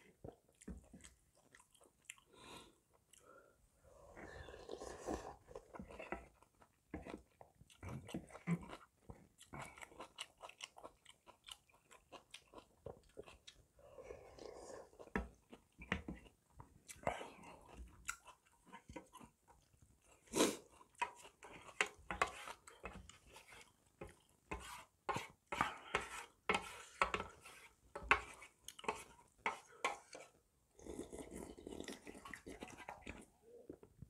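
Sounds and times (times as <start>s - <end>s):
chewing and lip smacks: 0.2s - 2.3s, 5.6s - 13.6s
slurping: 3.1s - 6.6s, 25.2s - 33.8s.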